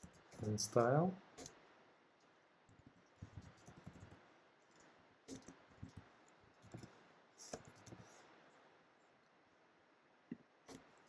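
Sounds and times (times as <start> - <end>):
keyboard typing: 2.7 - 6.9, 7.5 - 8.0.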